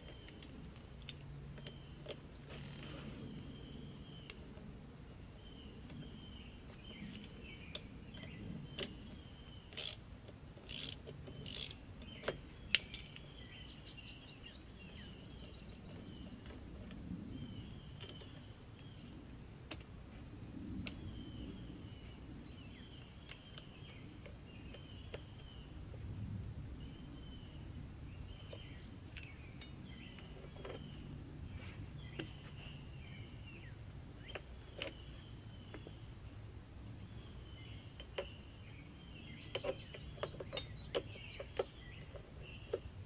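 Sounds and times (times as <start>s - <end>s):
hand tools clicking on metal: 39.5s - 41.7s.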